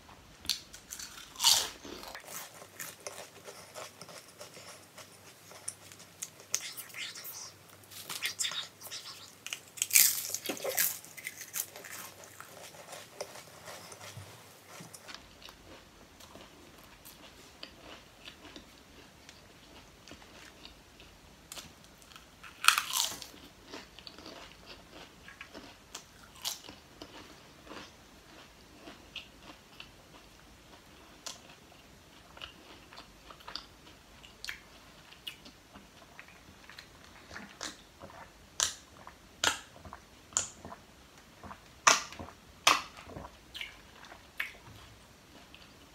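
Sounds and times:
potato chips crunching: 0:00.5 - 0:18.6, 0:21.5 - 0:29.5.

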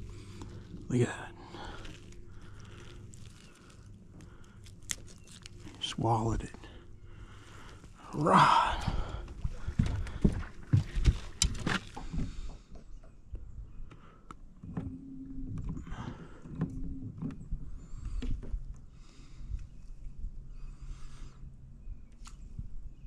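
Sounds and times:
low motor hum: 0:00.0 - 0:13.8
tackle clicks and knocks in boat: 0:09.7 - 0:12.9.

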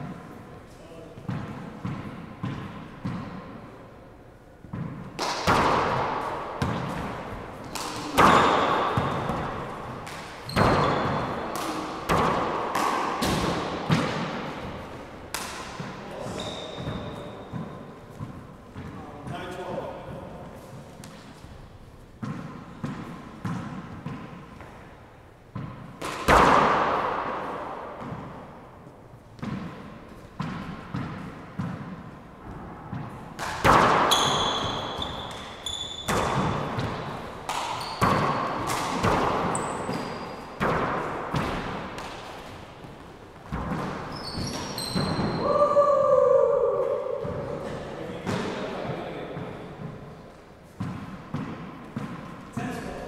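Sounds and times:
handball hits echoing: 0:00.0 - 0:03.8, 0:04.6 - 0:53.0
sneakers squeaking on hardwood: 0:05.8 - 0:12.5, 0:13.3 - 0:24.9, 0:33.9 - 0:45.4.

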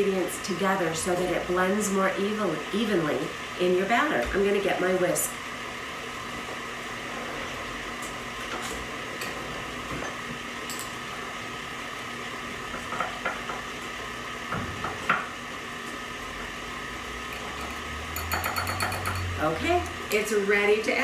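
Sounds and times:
whisk clinking against glass: 0:17.6 - 0:19.4.

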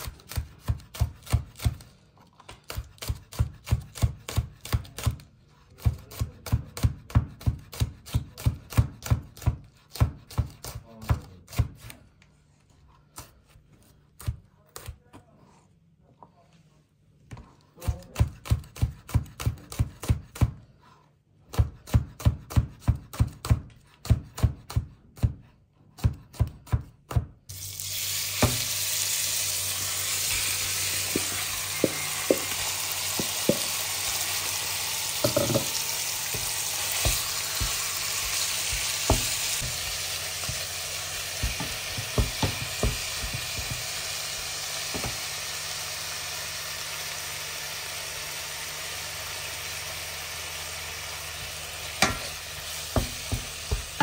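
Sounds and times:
knife chopping on cutting board: 0:00.0 - 0:01.8, 0:02.6 - 0:05.2, 0:05.8 - 0:12.0, 0:17.8 - 0:20.6, 0:21.5 - 0:27.4, 0:28.4 - 0:28.7, 0:31.1 - 0:32.6, 0:33.2 - 0:33.8, 0:35.2 - 0:40.7, 0:41.3 - 0:43.9, 0:52.9 - 0:54.0
meat sizzling in pan: 0:27.5 - 0:54.0
wooden spatula tapping and scraping: 0:31.1 - 0:33.8, 0:35.2 - 0:40.7, 0:52.0 - 0:54.0.

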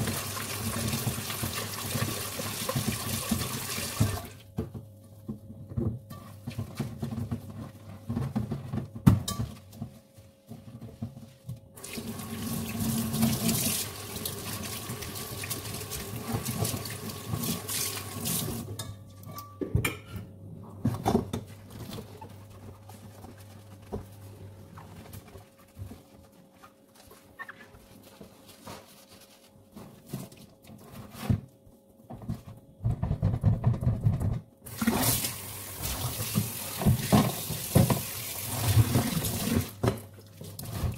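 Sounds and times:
dishes clinking in sink: 0:09.1 - 0:09.9, 0:18.7 - 0:20.3
tap running into sink: 0:34.8 - 0:39.7.

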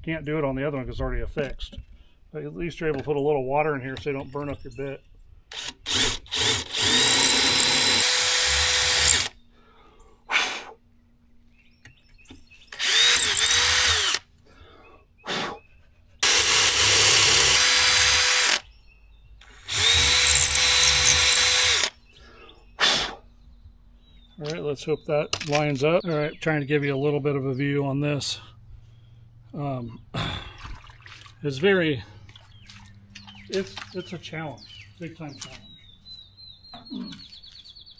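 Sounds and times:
power drill boring into cement block: 0:05.5 - 0:09.4, 0:12.7 - 0:14.2, 0:16.2 - 0:18.6, 0:19.4 - 0:22.0.

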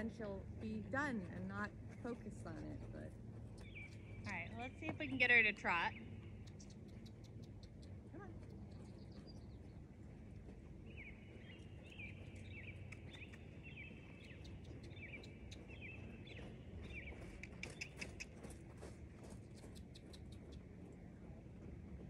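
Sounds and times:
songbird chirping: 0:00.0 - 0:21.0
low outdoor background rumble: 0:00.0 - 0:22.0.

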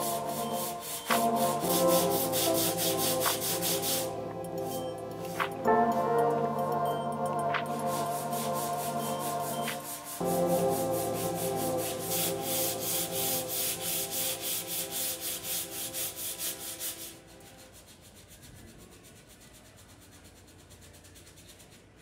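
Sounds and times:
sanding pad scraping a panel: 0:00.0 - 0:04.1, 0:07.8 - 0:18.8.

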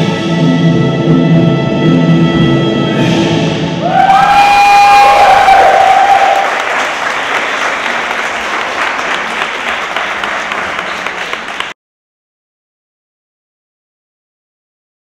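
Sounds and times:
audience applauding: 0:04.0 - 0:11.8.

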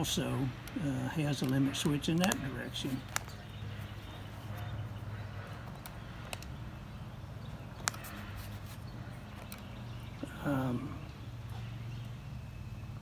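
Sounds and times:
sharp clicks: 0:05.6 - 0:06.6.

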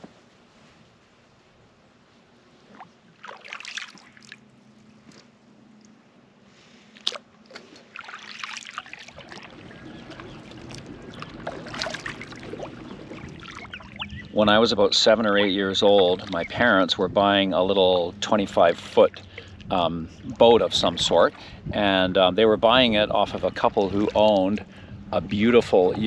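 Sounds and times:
low steady hum: 0:00.0 - 0:26.0
kayak paddle splashing in water: 0:02.7 - 0:04.4, 0:07.0 - 0:14.3.

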